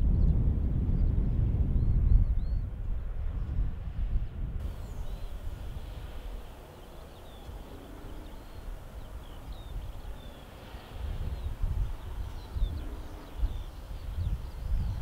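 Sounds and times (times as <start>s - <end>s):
wind buffeting microphone: 0.0s - 15.0s
small birds chirping: 4.6s - 15.0s.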